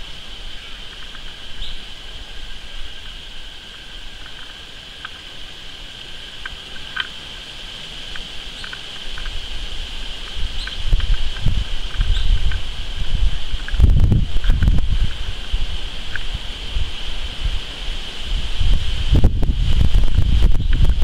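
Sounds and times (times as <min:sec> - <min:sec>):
high-pitched insect drone: 0:00.0 - 0:21.0
wind rumble on microphone: 0:00.0 - 0:21.0
faint clicks and chirps: 0:00.7 - 0:01.9, 0:03.0 - 0:05.3, 0:06.2 - 0:09.4, 0:10.1 - 0:12.7, 0:16.0 - 0:16.3.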